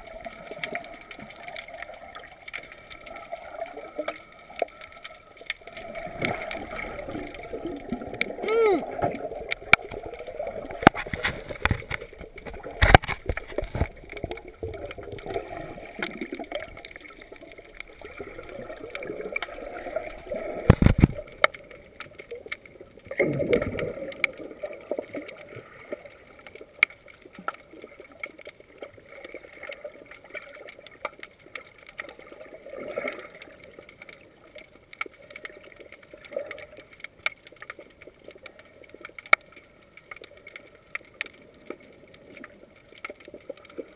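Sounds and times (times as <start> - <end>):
underwater gurgling water: 0.0 - 43.9
underwater clicks and knocks: 9.0 - 24.4.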